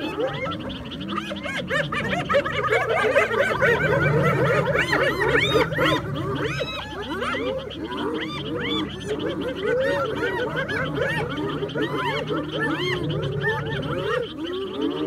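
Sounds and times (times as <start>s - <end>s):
hyenas yelping and giggling: 0.0s - 15.0s.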